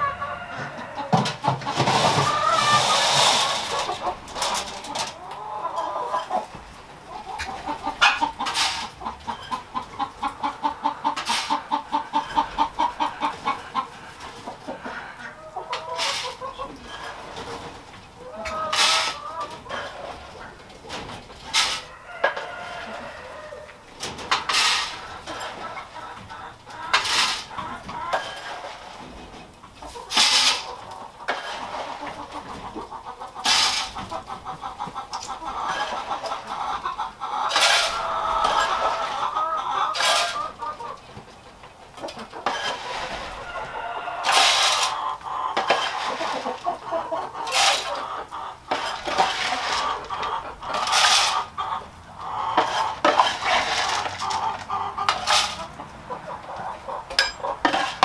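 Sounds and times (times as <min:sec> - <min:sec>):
chickens clucking: 0:00.0 - 0:58.0
feed clattering: 0:52.6 - 0:55.8.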